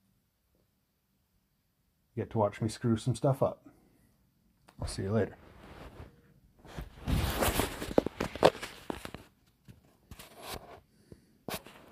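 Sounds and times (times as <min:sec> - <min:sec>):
rustling: 0:05.3 - 0:10.9.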